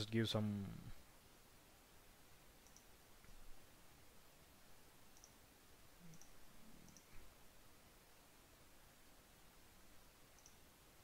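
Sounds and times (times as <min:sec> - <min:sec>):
faint computer mouse clicks: 0:02.6 - 0:03.4, 0:05.1 - 0:05.4, 0:06.0 - 0:07.2, 0:10.3 - 0:10.6.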